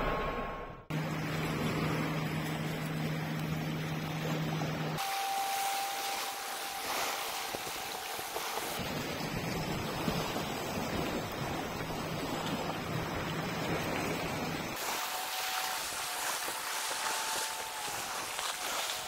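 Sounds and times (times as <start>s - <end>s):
sea water washing against rocks: 5.0s - 19.0s.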